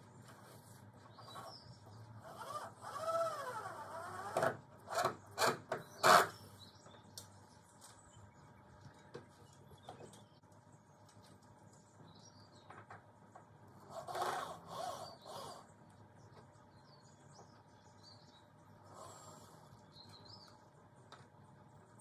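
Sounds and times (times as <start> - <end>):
distant cordless drill whine: 2.2 - 6.6, 13.8 - 15.7, 18.8 - 19.8.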